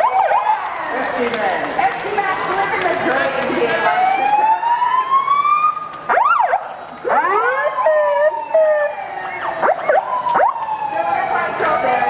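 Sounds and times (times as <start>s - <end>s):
fire truck siren: 0.0s - 12.0s.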